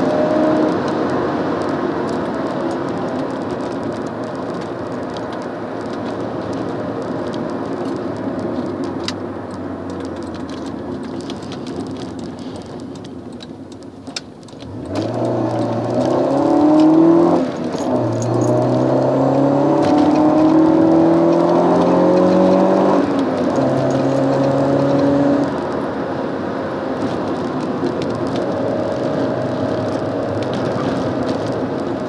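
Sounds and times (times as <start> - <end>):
gear upshift: 0.0 - 32.0
car engine revving: 14.6 - 32.0.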